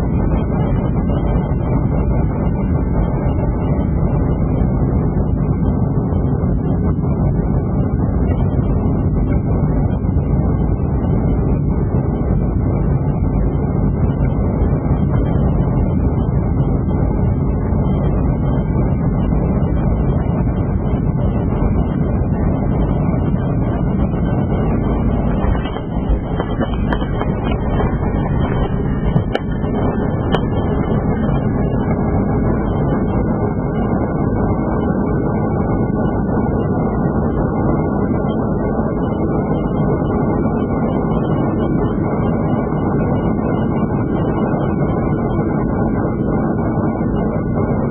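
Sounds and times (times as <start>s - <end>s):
jet engines and rushing air: 0.0s - 47.9s
aircraft touchdown knocks: 25.4s - 30.8s.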